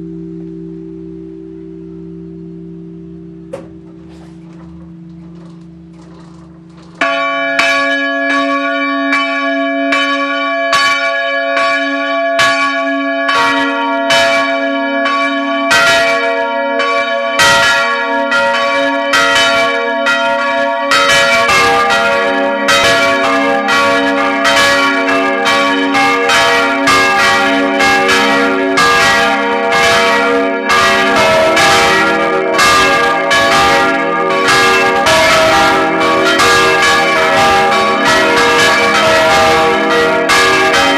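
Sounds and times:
low hum: 0.0s - 7.0s
church bells ringing: 0.0s - 40.9s.

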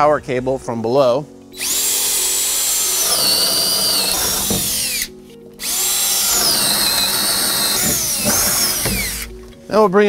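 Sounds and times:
power drill boring into wood: 1.6s - 9.4s.

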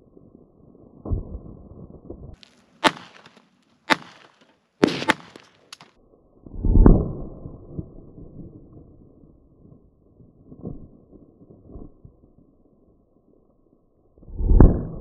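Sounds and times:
pistol shots cracking: 2.8s - 5.9s.

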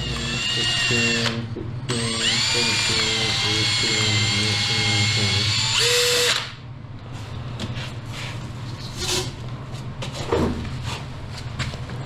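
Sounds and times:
drill spinning mixing paddle: 0.0s - 6.5s
steady low hum: 0.0s - 12.0s.

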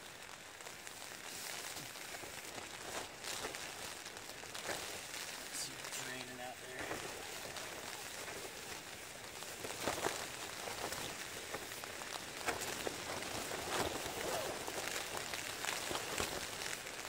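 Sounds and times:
tent fabric rattling: 0.0s - 17.0s
wind buffeting a tent: 0.0s - 17.0s.

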